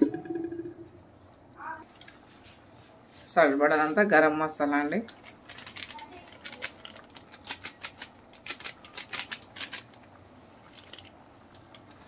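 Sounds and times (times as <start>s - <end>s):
plastic packet crinkling: 5.1s - 12.0s.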